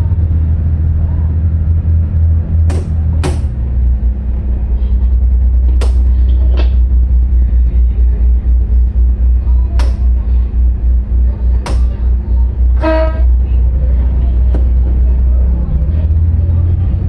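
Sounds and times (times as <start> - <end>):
diesel boat engine drone: 0.0 - 17.0
sharp knocks: 2.6 - 3.6, 9.8 - 10.0, 11.6 - 12.0.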